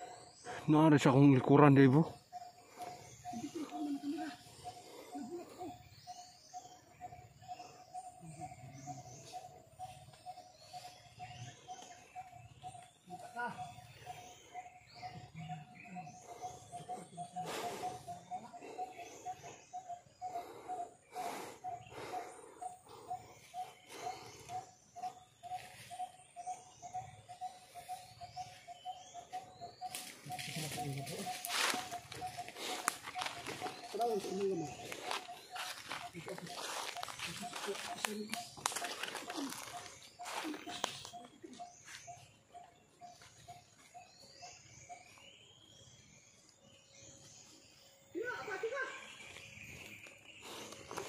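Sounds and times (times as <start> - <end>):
steady pulsing call: 0.0 - 45.7
small birds chirping: 0.0 - 51.0
footsteps crunching dry leaves: 30.4 - 41.0.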